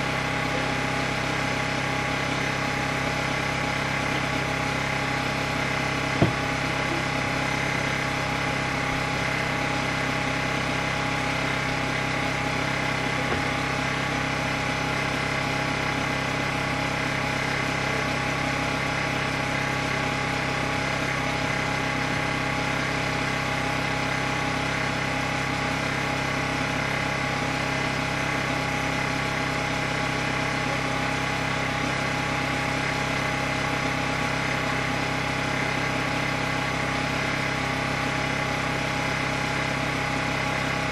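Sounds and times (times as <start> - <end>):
steady mechanical hum: 0.0 - 40.9
sharp knock: 6.2 - 6.5.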